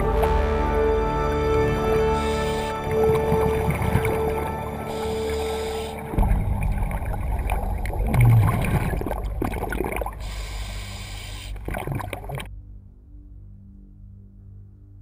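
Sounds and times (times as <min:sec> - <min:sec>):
diver exhaust bubbles underwater: 0:00.8 - 0:12.5.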